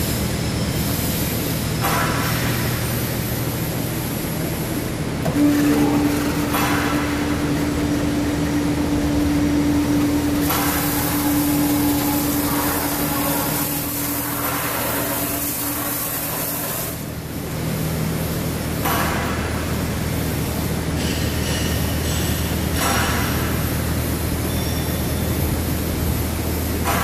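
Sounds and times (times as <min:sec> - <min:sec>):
machine humming: 0:00.0 - 0:18.2
rinse jets hissing: 0:05.2 - 0:17.0.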